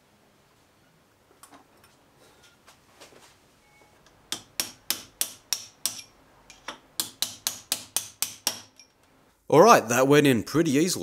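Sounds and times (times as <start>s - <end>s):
hammer tapping metal pin: 4.0s - 9.0s.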